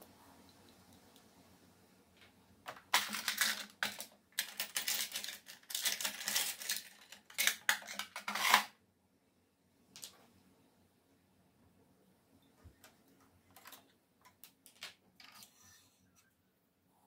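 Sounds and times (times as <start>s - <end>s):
plastic clattering and scraping: 2.2s - 8.8s.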